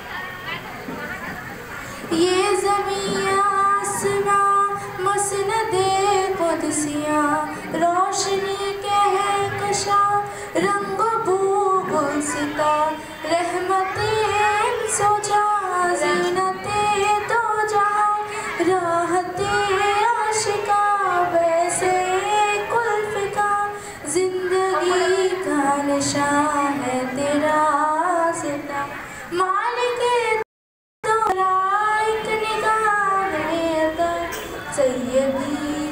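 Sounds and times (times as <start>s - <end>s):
girl singing into a microphone: 1.8s - 30.4s, 31.0s - 35.9s.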